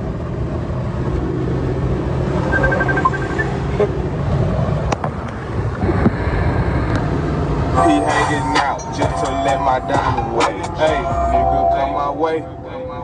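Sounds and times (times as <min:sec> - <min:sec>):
car engine and road rumble: 0:00.0 - 0:13.0
short high beeps: 0:02.4 - 0:03.6.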